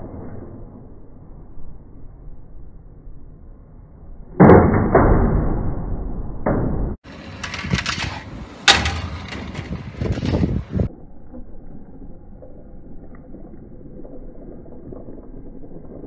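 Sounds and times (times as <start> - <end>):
toy train crashing: 7.3 - 10.7.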